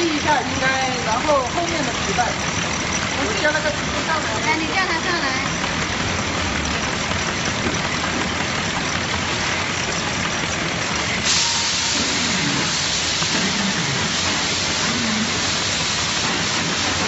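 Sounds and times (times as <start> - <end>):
machinery noise: 0.0 - 17.0
strong hiss: 11.2 - 17.0.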